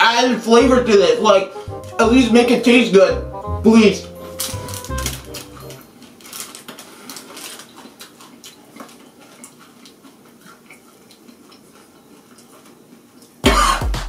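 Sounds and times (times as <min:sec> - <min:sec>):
foil packet crinkling: 0:04.0 - 0:11.4
loud cough: 0:13.4 - 0:13.9.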